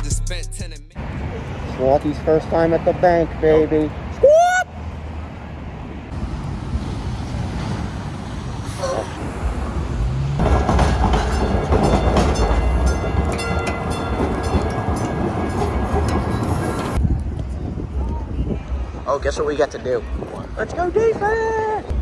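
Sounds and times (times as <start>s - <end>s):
moving vehicle rumble and rattle: 5.0s - 21.0s.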